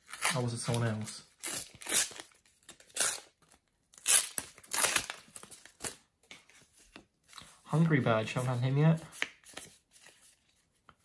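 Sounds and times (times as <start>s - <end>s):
wrapper tearing and crinkling: 0.0s - 6.0s.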